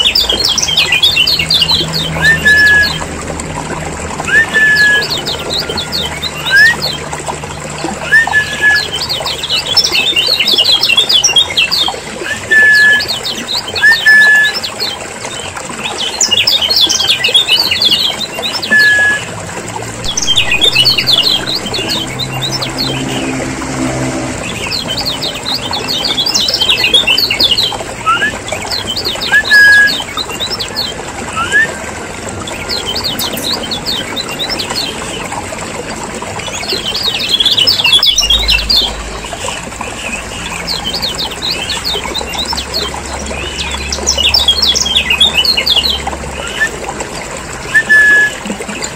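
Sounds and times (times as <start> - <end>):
low hum: 19.6 - 28.4
bird chirping: 20.0 - 23.4, 32.5 - 35.1, 36.7 - 39.1.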